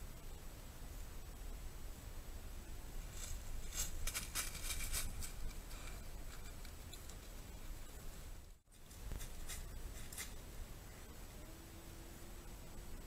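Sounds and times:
low background hum: 0.0s - 13.0s
footsteps on dry leaves: 3.1s - 5.6s.

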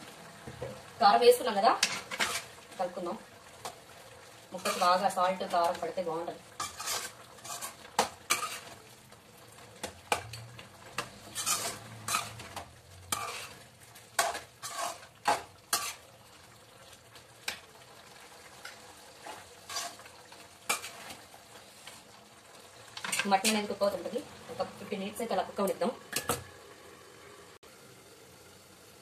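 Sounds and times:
faint sizzle: 0.0s - 29.0s
metal spoon scraping pan: 1.8s - 2.5s, 4.6s - 5.1s, 6.6s - 8.8s, 11.0s - 16.0s, 18.6s - 20.1s, 20.7s - 21.2s, 23.0s - 23.7s.

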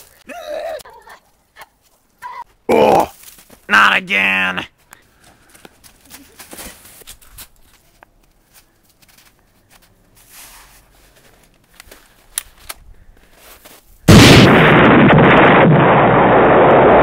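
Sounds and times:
faint clicks and rustles: 4.8s - 14.0s
loud rumbling explosion: 14.1s - 17.0s.

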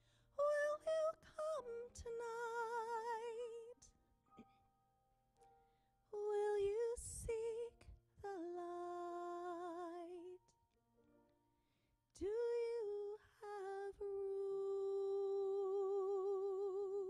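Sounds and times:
woman singing long held notes: 12.2s - 17.0s.

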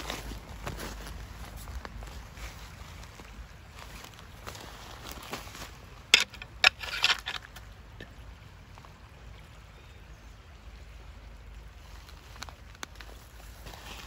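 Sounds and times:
footsteps crunching on gravel: 0.0s - 7.5s, 13.0s - 14.0s.

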